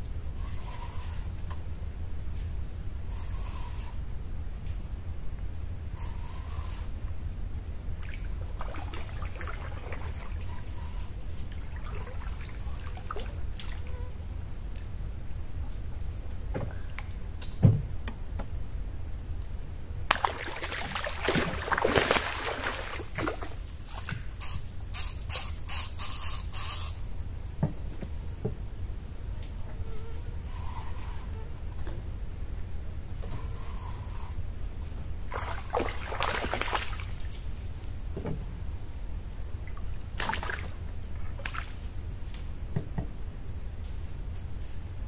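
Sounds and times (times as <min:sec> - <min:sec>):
low steady rumble: 0:00.0 - 0:25.0, 0:27.0 - 0:45.0
water splashing from thrashing fish: 0:20.1 - 0:23.6, 0:35.3 - 0:37.1.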